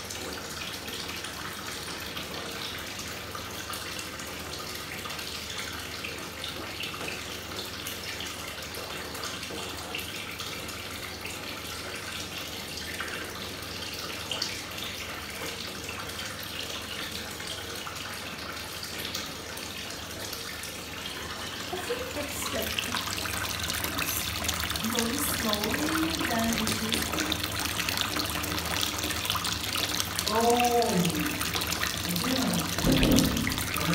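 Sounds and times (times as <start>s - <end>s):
bath bomb fizzing in water: 21.6s - 33.9s.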